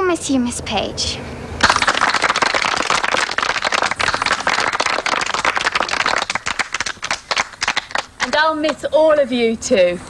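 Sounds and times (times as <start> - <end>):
people applauding: 1.6 - 8.4.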